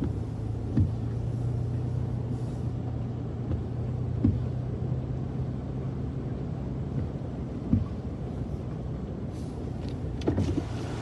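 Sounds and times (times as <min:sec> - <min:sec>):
car engine and road hum: 0:00.0 - 0:11.0.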